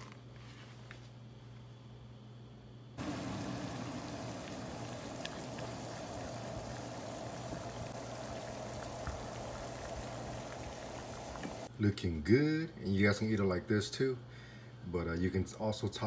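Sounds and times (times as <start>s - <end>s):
water boiling hard in pot: 3.0s - 11.7s.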